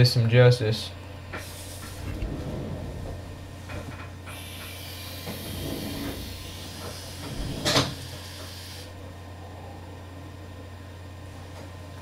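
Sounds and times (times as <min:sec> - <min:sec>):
airy hiss of vaping draw: 0:04.3 - 0:07.3, 0:07.9 - 0:09.0.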